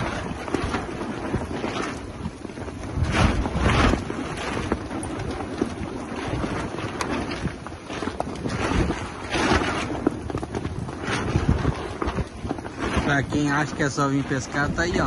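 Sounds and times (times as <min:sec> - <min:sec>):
strong wind gusting on microphone: 0:00.0 - 0:15.0.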